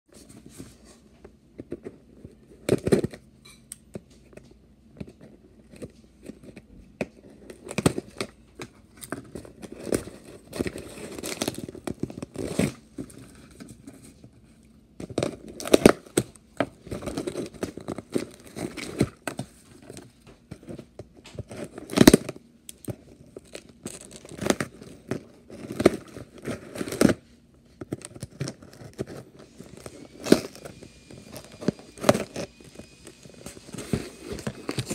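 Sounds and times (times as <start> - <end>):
packaging crinkling: 15.0 - 34.9.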